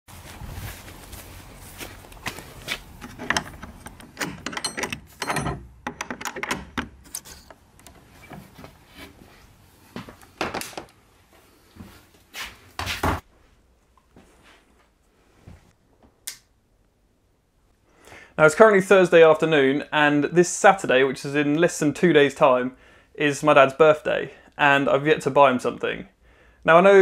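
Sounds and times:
footsteps on a path: 0.1s - 3.0s
padlock and hasp clinking: 2.9s - 8.0s
wooden door opening: 2.9s - 8.6s.

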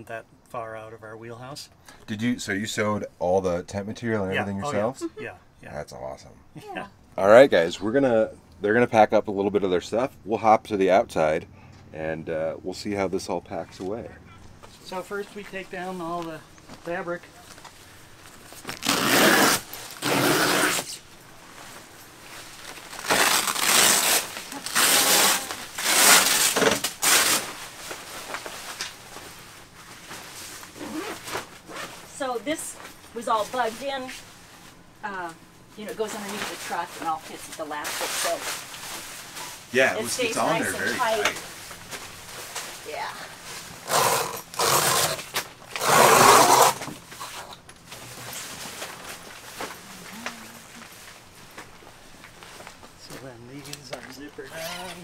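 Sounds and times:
tent fabric rustling: 15.1s - 34.9s, 35.7s - 53.3s
tent zipper being pulled: 18.6s - 21.0s, 22.9s - 27.5s, 30.6s - 32.2s, 43.5s - 47.5s.

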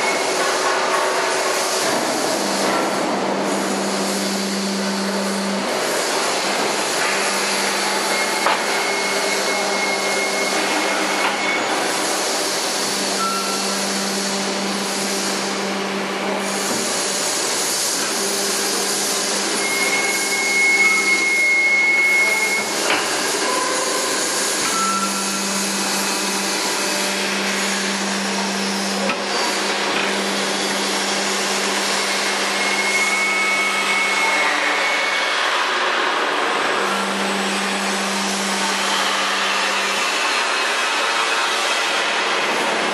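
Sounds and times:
machinery humming and hissing: 0.0s - 42.9s
high squeals: 19.6s - 22.8s.

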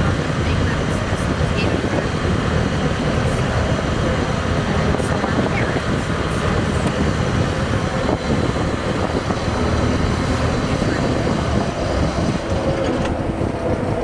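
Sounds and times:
boat diesel engine running: 0.0s - 14.0s
steady rushing noise: 0.0s - 14.0s.

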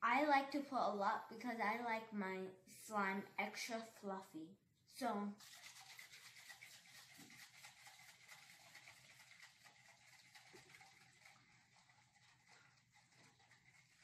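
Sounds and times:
aerosol can being shaken: 5.4s - 14.0s.

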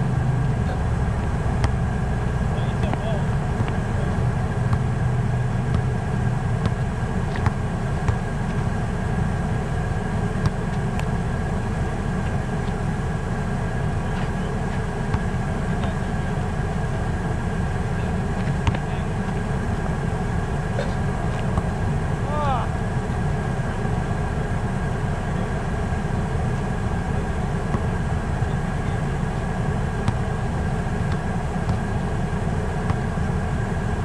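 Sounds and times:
basketball bouncing on asphalt: 1.2s - 2.0s, 2.7s - 9.0s, 9.7s - 11.3s, 14.7s - 15.4s, 18.4s - 19.4s, 20.8s - 21.8s, 29.9s - 32.2s, 32.8s - 33.2s.

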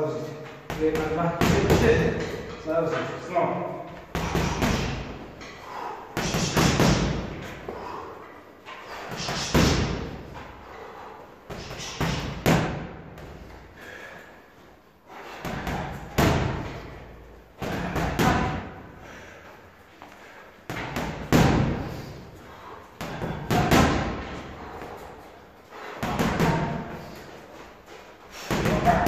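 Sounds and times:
boxing gloves punching heavy bag: 0.7s - 2.4s, 4.0s - 5.3s, 6.2s - 7.6s, 9.0s - 10.4s, 11.5s - 13.6s, 15.2s - 17.0s, 17.6s - 18.8s, 20.7s - 22.1s, 23.0s - 27.3s, 28.3s - 29.0s.

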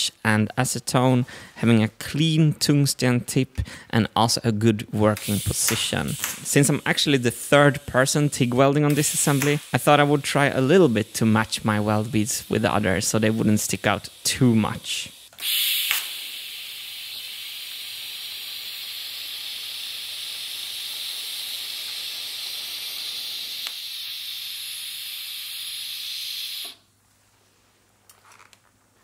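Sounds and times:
welding arc hissing: 5.0s - 26.9s.

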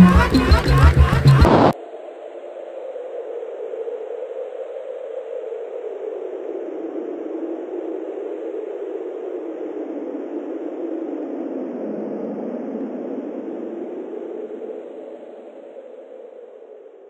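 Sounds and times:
steady rushing noise: 0.0s - 1.8s.

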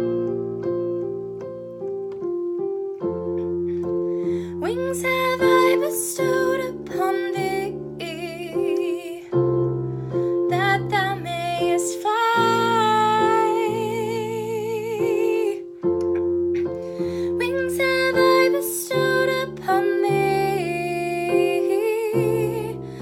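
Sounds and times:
electronic keyboard piano chords: 0.0s - 23.0s
woman singing with vibrato: 4.6s - 9.4s, 10.5s - 15.7s, 17.1s - 23.0s.

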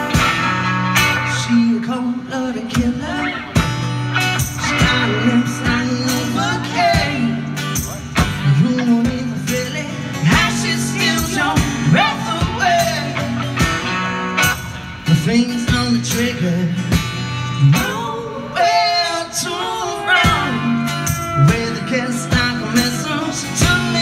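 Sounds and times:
band playing blues-rock: 0.0s - 24.0s
person singing: 4.6s - 7.7s, 17.6s - 24.0s.

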